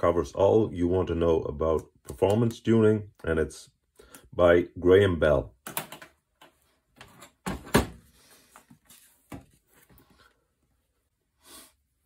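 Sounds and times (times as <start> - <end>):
paper rustling: 8.2 - 10.4.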